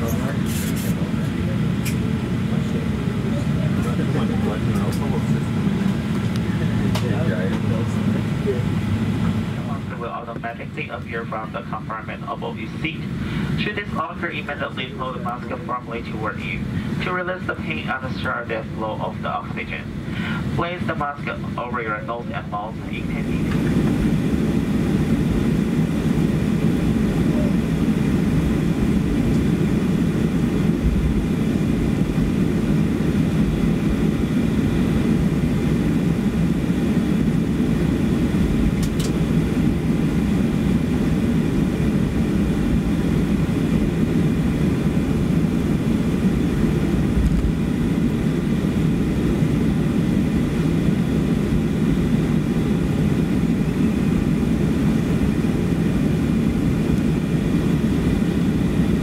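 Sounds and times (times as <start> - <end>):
jet engines rumbling with whine: 0.0 - 59.0.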